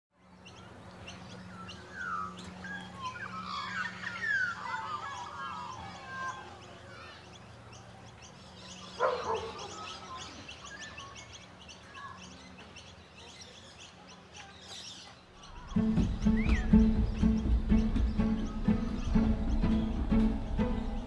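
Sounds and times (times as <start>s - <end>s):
birds calling: 0.3s - 21.0s
steady low hum: 15.6s - 21.0s.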